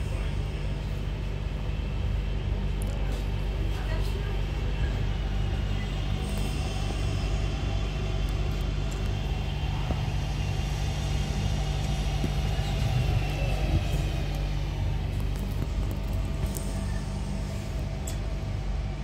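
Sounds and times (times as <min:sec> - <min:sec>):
low electrical hum: 0:00.0 - 0:19.0
train wheels rumbling on track: 0:00.0 - 0:19.0
faint high whine: 0:04.2 - 0:19.0.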